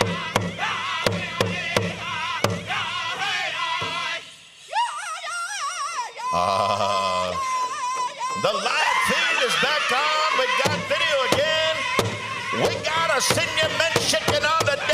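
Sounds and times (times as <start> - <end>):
big drum beating: 0.0 - 2.9, 10.6 - 14.9
high wavering group singing: 0.0 - 14.9.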